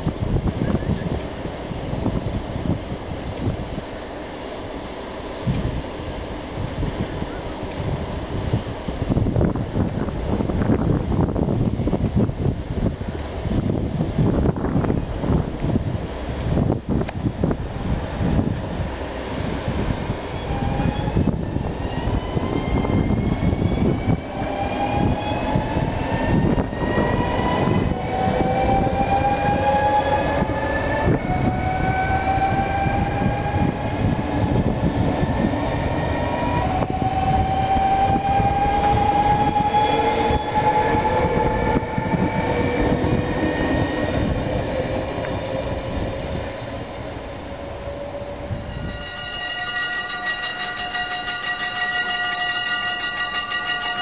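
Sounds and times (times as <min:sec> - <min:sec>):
train wheels rumbling on rails: 0:00.0 - 0:54.0
train traction motor whine: 0:17.4 - 0:54.0.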